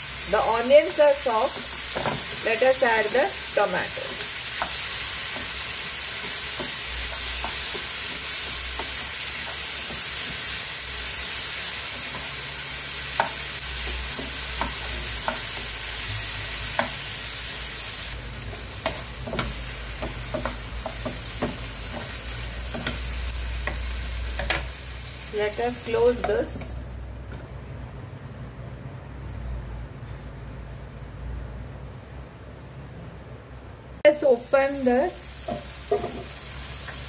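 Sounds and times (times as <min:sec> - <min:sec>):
vegetables sizzling in frying pan: 0:00.0 - 0:27.3, 0:34.1 - 0:37.0
spatula knocking and scraping pan: 0:00.9 - 0:03.1, 0:03.9 - 0:10.5, 0:13.1 - 0:15.7, 0:18.5 - 0:24.8, 0:25.8 - 0:26.8, 0:35.4 - 0:37.0.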